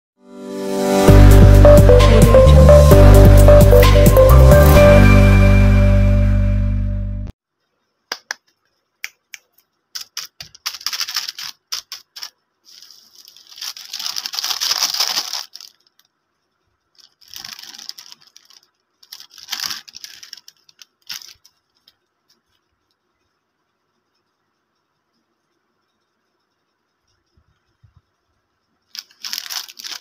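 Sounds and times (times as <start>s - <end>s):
plastic wrapper crinkling and tearing: 9.9s - 16.2s, 16.9s - 22.6s, 28.9s - 30.0s.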